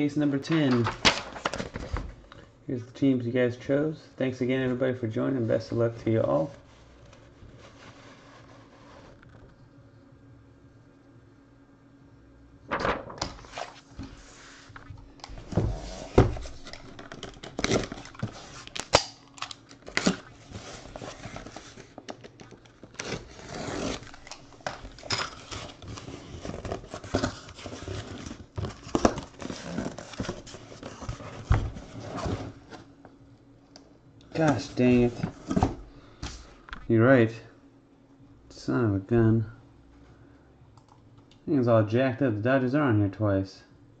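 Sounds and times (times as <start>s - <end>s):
cardboard and tape tearing: 16.1s - 21.9s, 22.9s - 32.6s.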